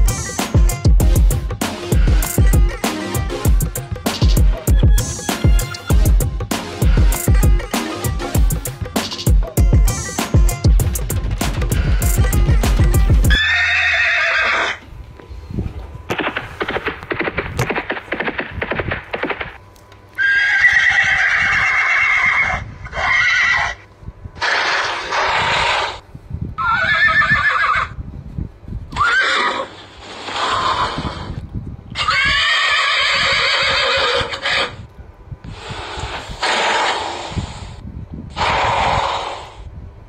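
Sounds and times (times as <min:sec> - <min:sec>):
horses neighing: 0:13.3 - 0:14.9, 0:20.2 - 0:23.8, 0:26.6 - 0:28.0, 0:28.9 - 0:31.4, 0:32.0 - 0:34.8.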